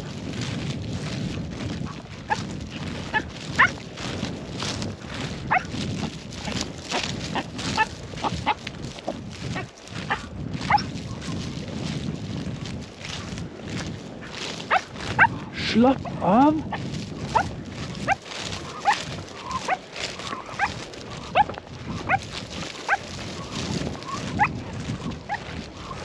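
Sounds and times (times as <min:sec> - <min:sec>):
footsteps through dry stubble: 0:00.0 - 0:26.0
dog yelping and whining: 0:07.7 - 0:08.6, 0:10.1 - 0:10.9.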